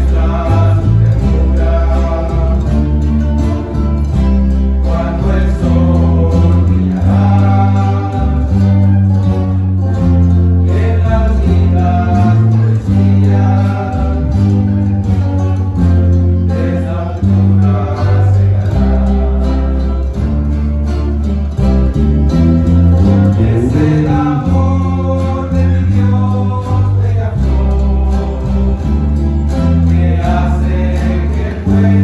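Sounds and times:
acoustic guitars strumming: 0.0 - 32.0
bass line: 0.0 - 32.0
mandolins plucking: 0.0 - 32.0
voices singing together: 0.0 - 32.0.

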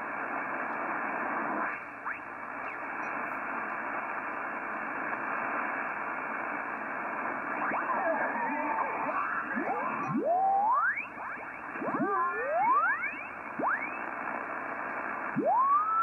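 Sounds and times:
radio static hiss: 0.0 - 16.0
sliding radio whistles: 1.4 - 3.3, 7.2 - 16.0.

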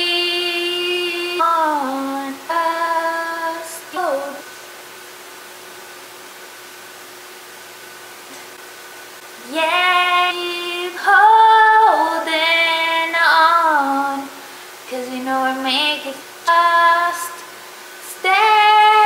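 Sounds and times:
woman singing: 0.0 - 4.5, 9.4 - 19.0
faint steady hum: 0.0 - 19.0.

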